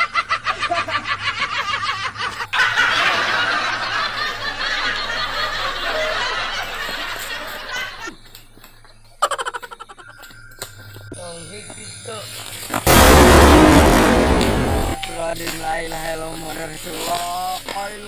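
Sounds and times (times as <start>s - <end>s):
people laughing hard: 0.0s - 8.2s, 9.2s - 10.1s.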